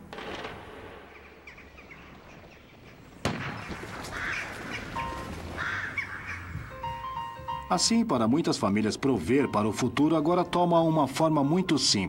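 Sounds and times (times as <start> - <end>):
outdoor ambience: 0.0 - 12.0
birds calling: 0.8 - 7.7.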